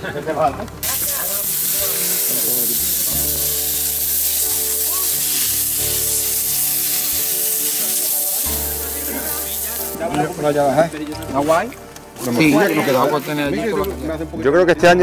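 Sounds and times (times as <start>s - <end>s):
meat sizzling in a pan: 0.8s - 14.0s.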